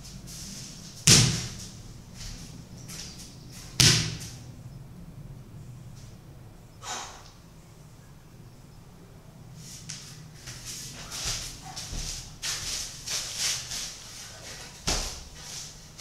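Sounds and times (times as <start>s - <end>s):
loud thuds: 1.0s - 1.6s.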